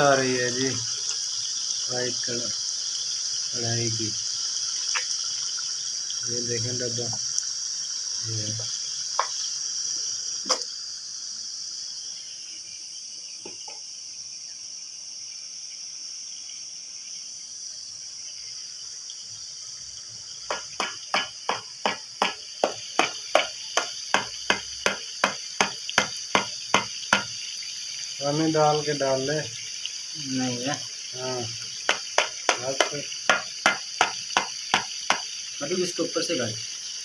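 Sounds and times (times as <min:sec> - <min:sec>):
steady high hiss: 0:00.0 - 0:37.0
carton knocking on pan: 0:08.6 - 0:09.4, 0:13.4 - 0:13.8, 0:20.4 - 0:27.4, 0:31.8 - 0:35.3.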